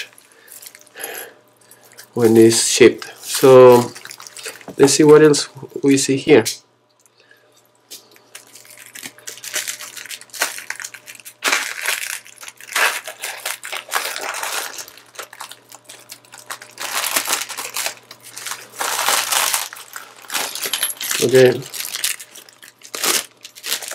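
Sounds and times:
plastic wrap crinkling and tearing: 3.1s - 4.8s, 8.3s - 23.9s.

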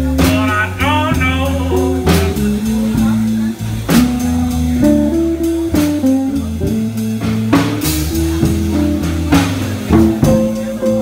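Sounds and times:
drum kit: 0.0s - 11.0s
electric guitars: 0.0s - 11.0s.

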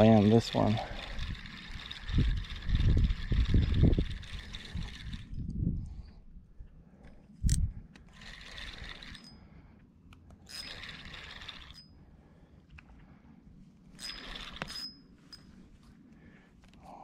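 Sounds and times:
fishing reel buzzing: 0.0s - 5.5s, 7.5s - 9.5s, 10.4s - 12.0s, 14.0s - 15.4s.

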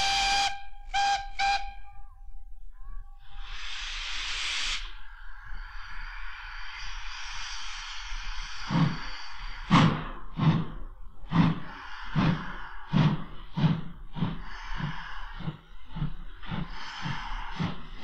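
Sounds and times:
steam locomotive exhaust beats: 0.0s - 2.0s, 6.9s - 18.0s
steam locomotive whistle: 0.0s - 2.1s.

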